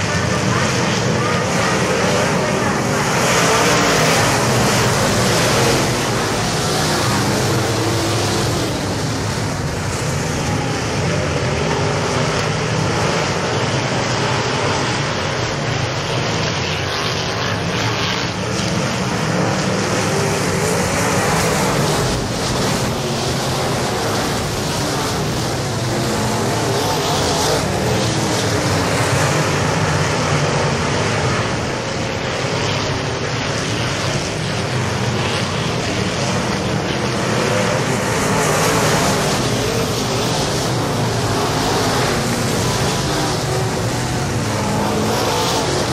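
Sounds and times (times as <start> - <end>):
race car engines roaring: 0.0 - 45.9.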